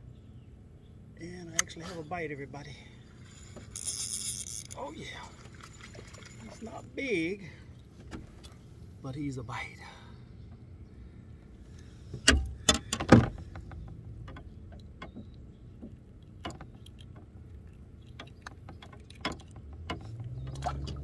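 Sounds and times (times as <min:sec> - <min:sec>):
handling knocks and clicks: 0:12.2 - 0:21.0.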